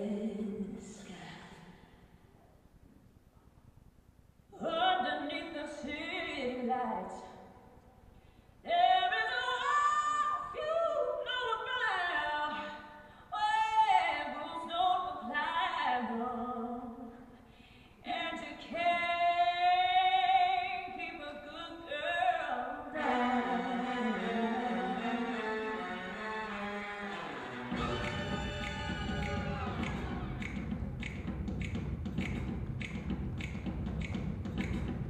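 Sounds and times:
woman singing pop song: 0:00.0 - 0:01.7, 0:04.6 - 0:07.4, 0:08.6 - 0:17.3, 0:18.0 - 0:25.0.

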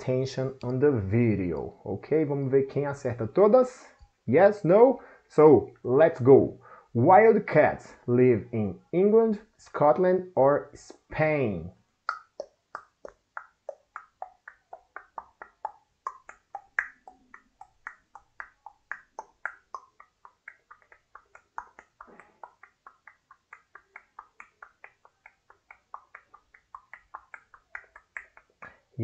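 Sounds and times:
quiz timer ticking: 0:12.1 - 0:29.0.

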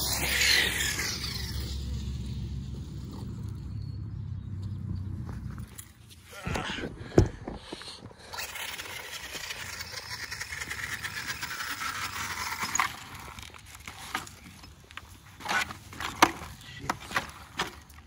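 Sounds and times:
rc truck motor whine: 0:00.0 - 0:03.9, 0:08.1 - 0:14.8.

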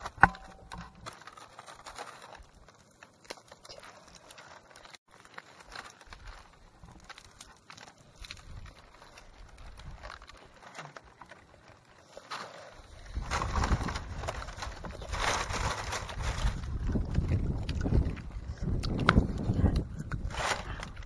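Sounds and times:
dry palm fronds rustling: 0:00.0 - 0:21.0
wind buffeting microphone: 0:13.0 - 0:21.0.

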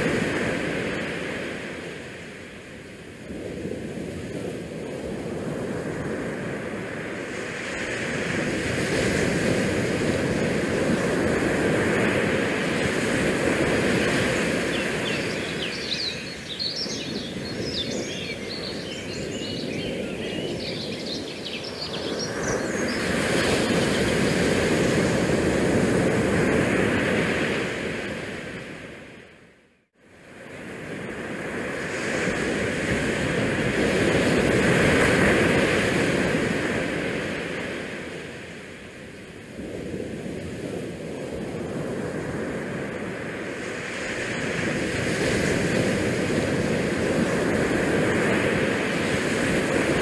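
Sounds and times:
wind on microphone: 0:00.0 - 0:29.3, 0:30.3 - 0:50.0
high chirping: 0:14.8 - 0:23.1.

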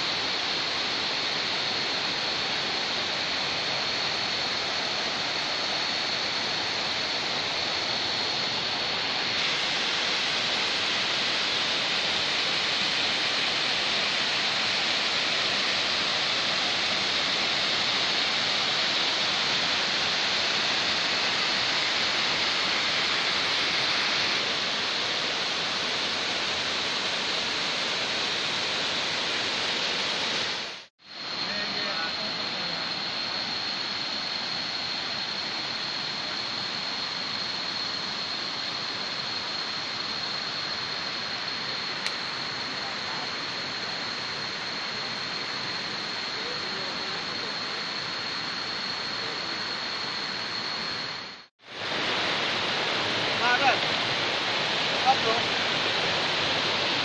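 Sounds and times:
water rushing over rocks: 0:00.0 - 0:37.5, 0:51.6 - 0:57.0.

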